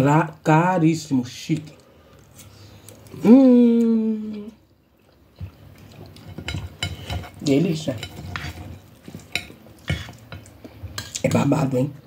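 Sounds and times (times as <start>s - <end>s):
cutlery scraping on glass plate: 6.0s - 11.4s.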